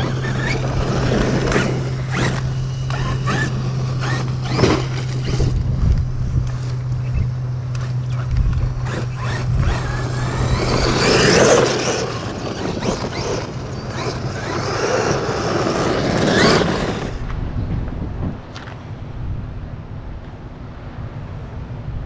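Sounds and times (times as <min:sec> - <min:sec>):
electric motor whining: 0:00.0 - 0:17.3
tyres scraping through dirt: 0:00.0 - 0:17.3.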